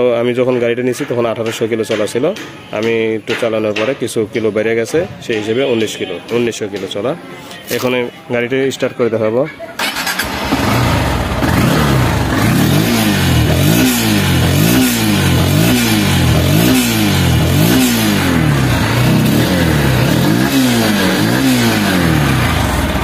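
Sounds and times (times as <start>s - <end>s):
motorcycle engine revving: 9.8s - 23.0s.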